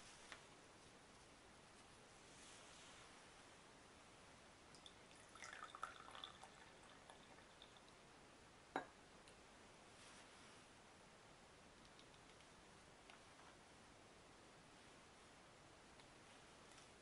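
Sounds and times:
tea pouring into cup: 4.7 - 8.0.

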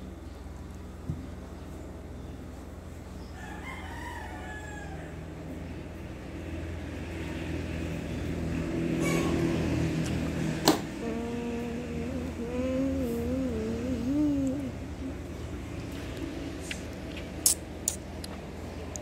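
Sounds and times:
rooster crowing: 3.3 - 5.4
low hum: 4.8 - 19.0.

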